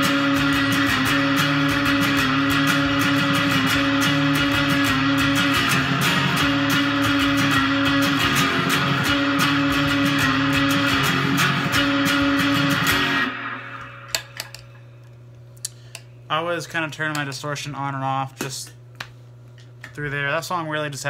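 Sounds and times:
distorted electric guitar: 0:00.0 - 0:15.0
amp low hum: 0:00.0 - 0:21.0.

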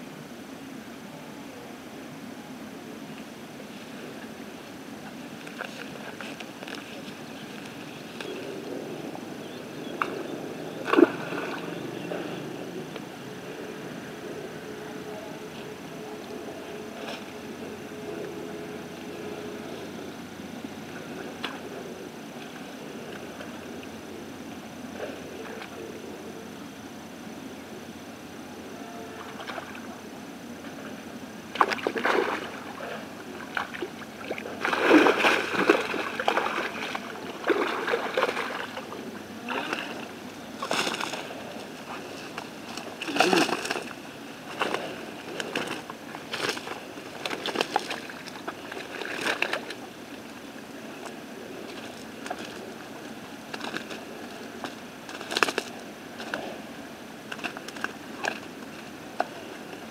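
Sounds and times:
water splashing: 0:09.9 - 0:12.4, 0:31.5 - 0:59.9
fish thrashing in net: 0:34.6 - 0:38.7, 0:42.7 - 0:49.7, 0:54.6 - 0:56.4.

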